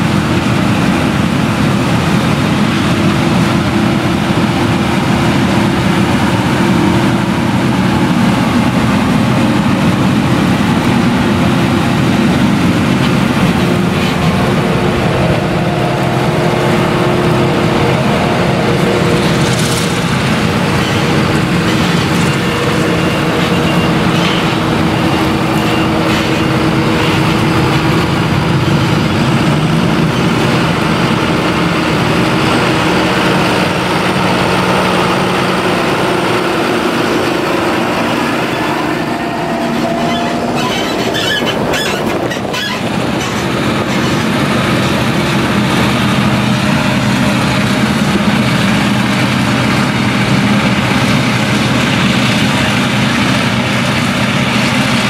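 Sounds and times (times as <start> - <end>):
harvester engine under load: 0.0 - 55.0
tractor engine: 0.0 - 55.0.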